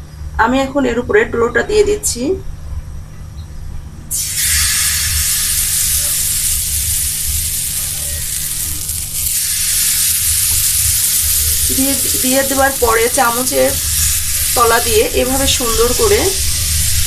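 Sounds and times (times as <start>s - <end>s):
batter sizzling on hot pan: 4.1s - 17.0s.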